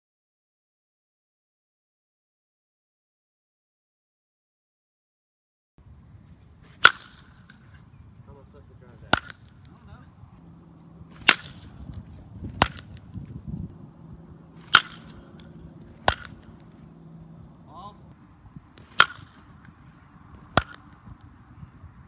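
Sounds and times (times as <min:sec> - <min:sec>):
low outdoor background: 0:05.8 - 0:22.0
baseball bat cracking balls: 0:06.4 - 0:08.0, 0:08.9 - 0:10.0, 0:10.8 - 0:17.7, 0:18.7 - 0:21.4.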